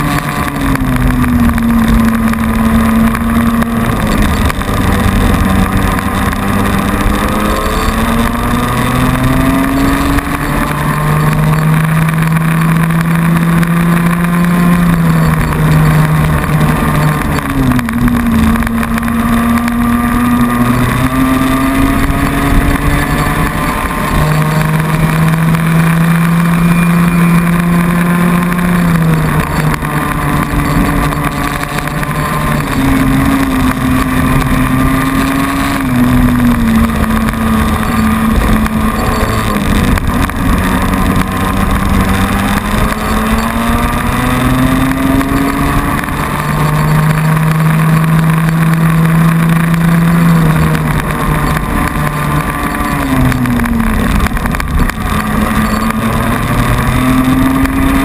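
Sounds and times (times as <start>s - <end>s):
two-stroke kart engine racing: 0.0s - 58.0s
wind rushing over microphone: 0.0s - 58.0s.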